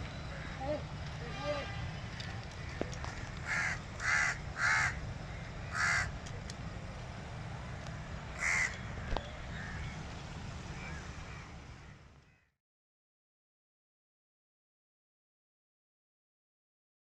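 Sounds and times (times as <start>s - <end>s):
crow cawing: 0.3s - 0.8s, 2.6s - 6.2s, 8.4s - 10.0s, 10.7s - 12.5s
low background rumble: 2.6s - 12.5s.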